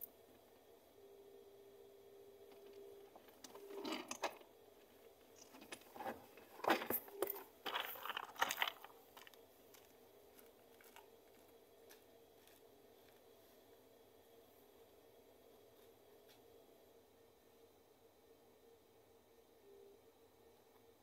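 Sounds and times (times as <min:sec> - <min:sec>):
faint steady hum: 0:00.0 - 0:21.0
scuffling and crunching noises: 0:05.4 - 0:13.2.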